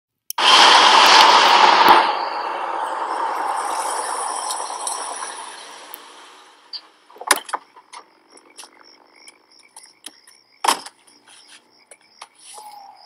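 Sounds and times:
pickup truck running: 0.4 - 8.3.

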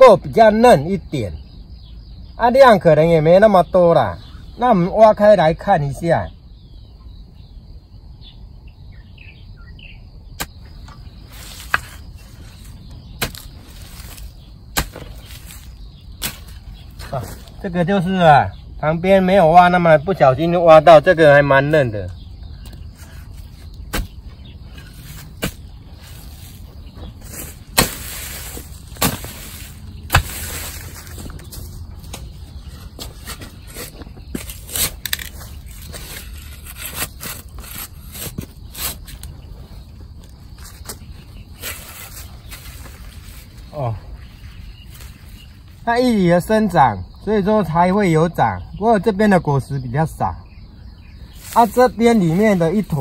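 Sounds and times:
faint chirping: 0.0 - 53.0
hoe chopping into soil: 10.4 - 17.5, 23.0 - 26.6, 27.2 - 32.3
loose earth scattering: 10.4 - 17.7, 22.1 - 39.4.

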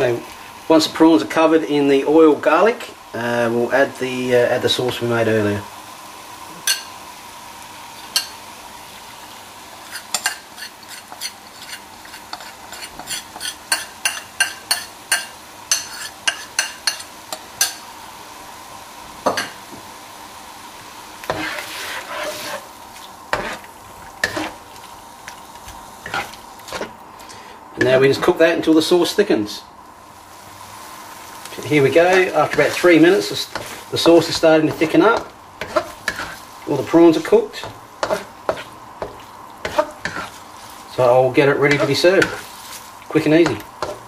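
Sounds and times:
frying sizzle: 0.0 - 44.0
plastic spatula scraping a wok: 21.2 - 24.7, 32.0 - 37.3, 38.0 - 40.8.

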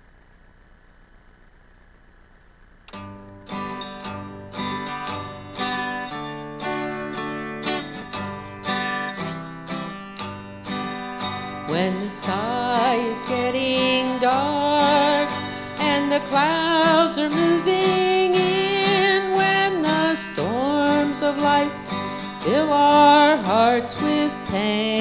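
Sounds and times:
acoustic guitar strumming: 2.9 - 25.0
woman singing: 11.6 - 25.0.

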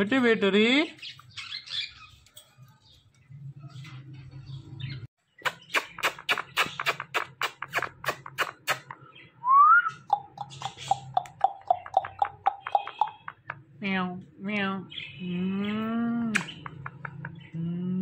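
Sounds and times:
lip smacks: 5.4 - 9.0, 16.3 - 17.2
short kiss-like notes: 16.3 - 16.6.

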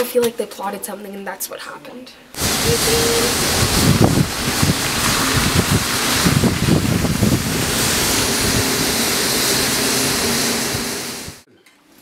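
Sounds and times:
wind buffeting microphone: 2.4 - 11.4.

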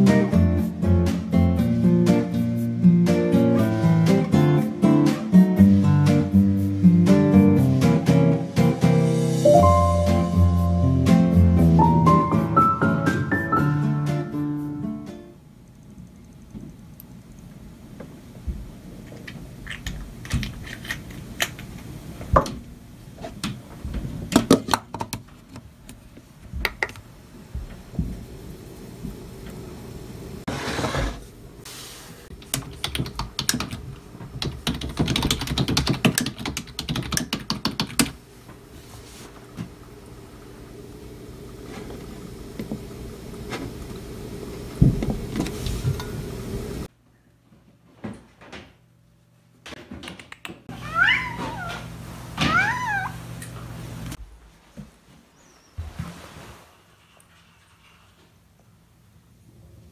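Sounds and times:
low background hum: 14.1 - 30.5
low mechanical hum: 14.3 - 50.0, 50.7 - 59.9
heavy thump: 44.8 - 45.2.

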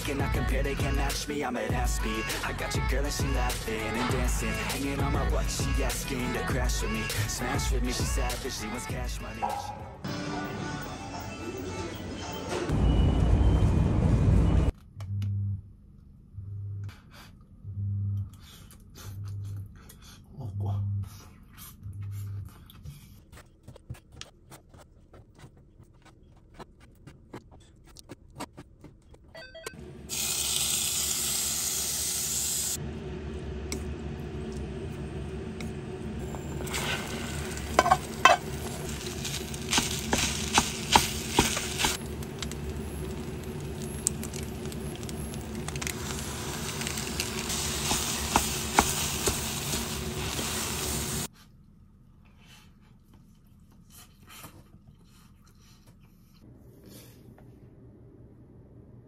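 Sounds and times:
food sizzling in a metal pan: 30.1 - 32.8, 36.6 - 42.0, 42.8 - 51.3.

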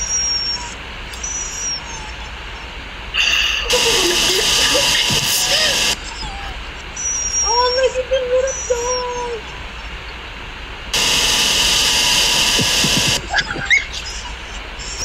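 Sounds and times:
dog whining: 0.0 - 10.2, 11.0 - 15.0
harsh noise blast: 11.0 - 13.3.

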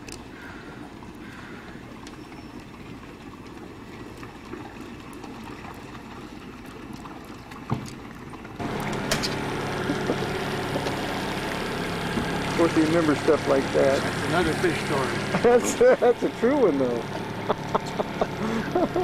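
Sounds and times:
engine rumbling: 8.5 - 19.0
engine idling hum: 8.6 - 19.0.

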